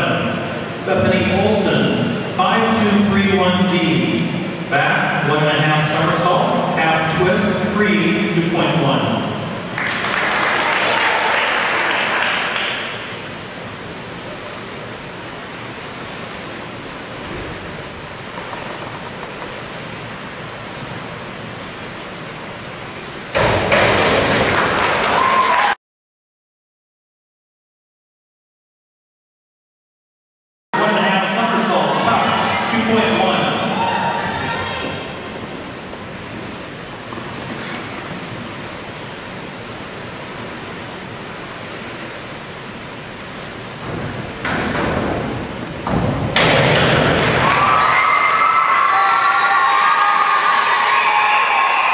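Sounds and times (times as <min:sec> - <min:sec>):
hiss of pool hall: 0:00.0 - 0:24.8, 0:30.8 - 0:51.9
spectators clapping and cheering: 0:09.7 - 0:13.1, 0:23.4 - 0:25.8, 0:46.9 - 0:51.9.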